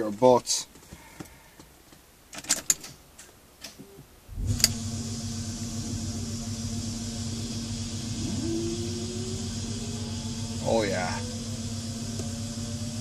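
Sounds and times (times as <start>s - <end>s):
power steering pump humming: 4.3s - 13.0s.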